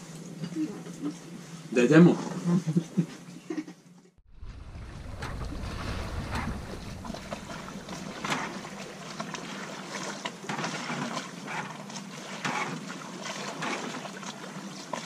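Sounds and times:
faint wind: 4.3s - 9.9s
loud splashes: 4.3s - 10.9s
water rushing along a hull: 4.3s - 15.0s.

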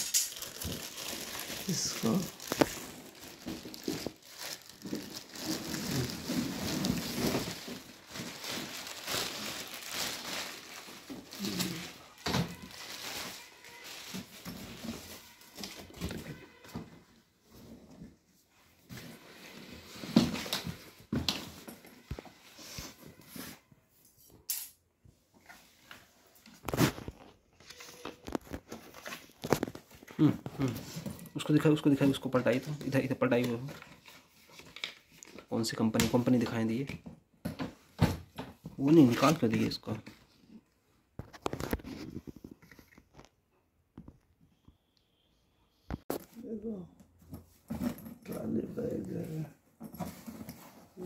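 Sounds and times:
plastic wrapping crinkling: 0.0s - 16.6s, 26.5s - 35.4s.

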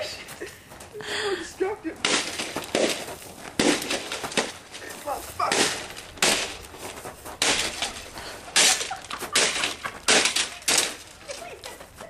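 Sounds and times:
feet stomping: 0.0s - 12.0s
coffee maker being smashed: 8.6s - 11.0s.

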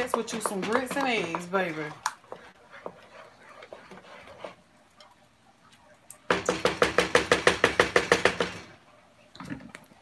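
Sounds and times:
wooden spoon stirring in saucepan: 0.0s - 10.0s.

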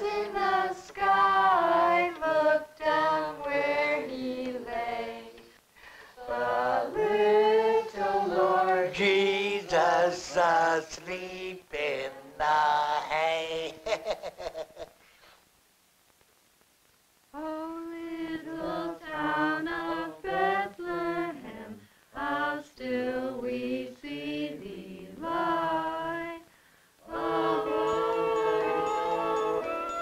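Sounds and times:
voices singing unaccompanied: 0.0s - 13.8s, 17.4s - 30.0s
instrumental music: 27.1s - 30.0s.

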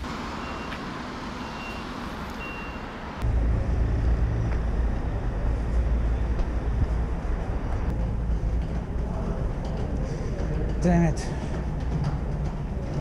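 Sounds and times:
city street traffic: 0.0s - 13.0s
short high beeps: 2.4s - 2.9s
heavy low rumble: 3.2s - 13.0s.

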